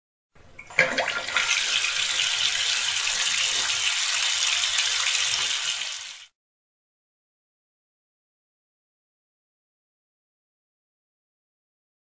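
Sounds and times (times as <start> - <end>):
water gushing down a pipe: 0.6 - 6.3.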